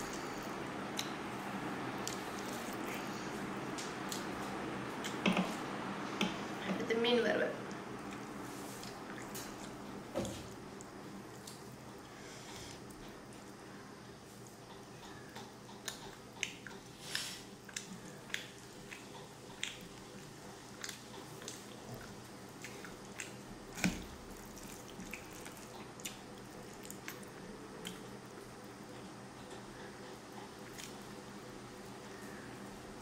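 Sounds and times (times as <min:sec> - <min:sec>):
chewing: 0:14.3 - 0:28.2, 0:28.9 - 0:31.2.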